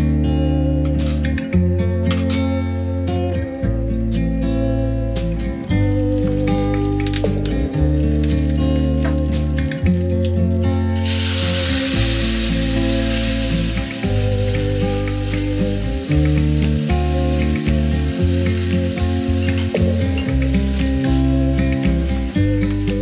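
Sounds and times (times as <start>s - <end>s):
hot oil sizzling in a pan: 5.6s - 23.0s.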